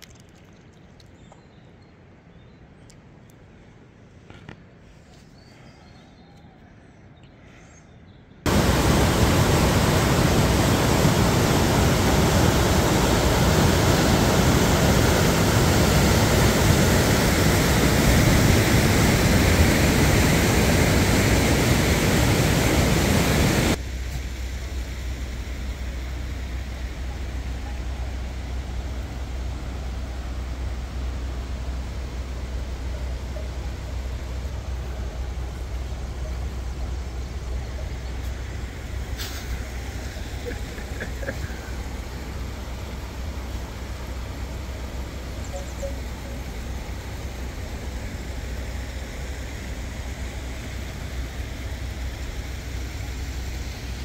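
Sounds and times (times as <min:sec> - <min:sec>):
faint small clicks: 0:00.0 - 0:01.5, 0:02.8 - 0:03.4
river rushing over boulders: 0:08.5 - 0:23.8
low hum: 0:08.5 - 0:54.0.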